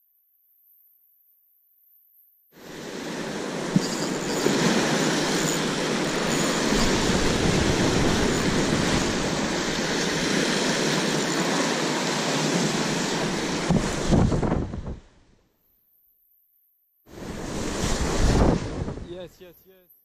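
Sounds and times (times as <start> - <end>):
surf breaking over rocks: 2.6 - 15.0, 17.1 - 19.3.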